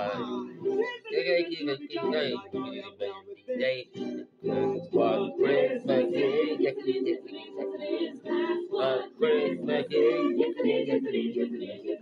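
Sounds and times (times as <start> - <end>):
man singing: 0.0 - 7.8.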